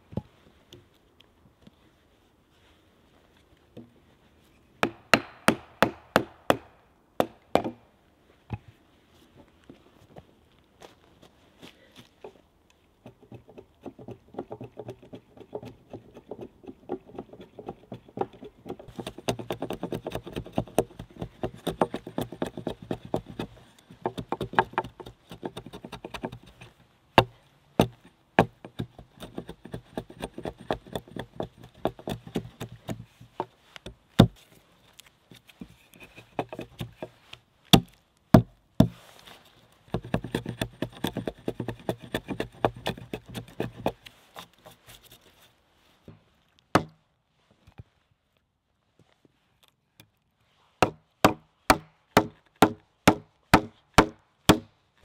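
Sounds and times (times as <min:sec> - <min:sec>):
axe chopping wood: 0:04.8 - 0:07.8, 0:13.1 - 0:26.5, 0:27.2 - 0:33.5, 0:34.2 - 0:34.4, 0:37.7 - 0:39.0, 0:46.7 - 0:47.0, 0:50.8 - 0:54.7.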